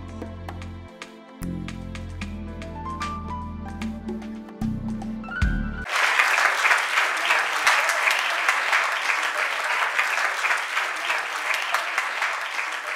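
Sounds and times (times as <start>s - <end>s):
music: 0.0s - 5.9s
audience applauding: 5.8s - 12.9s.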